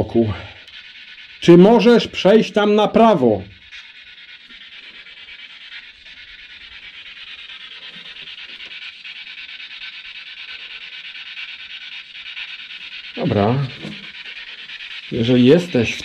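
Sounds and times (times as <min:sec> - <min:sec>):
choppy radio static: 0:13.2 - 0:14.3, 0:15.0 - 0:16.0.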